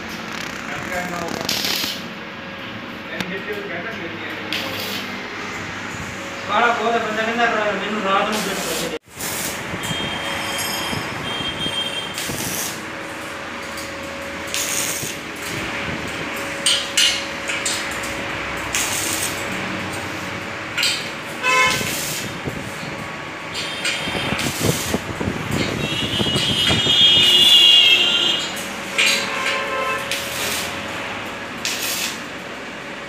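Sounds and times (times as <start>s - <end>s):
arc welding crackling hiss: 0.0s - 2.2s, 4.4s - 5.1s, 8.2s - 33.0s
short sharp welding bursts: 0.0s - 2.2s, 4.4s - 5.2s, 8.2s - 13.0s, 14.4s - 15.6s, 16.6s - 22.8s, 23.5s - 32.4s.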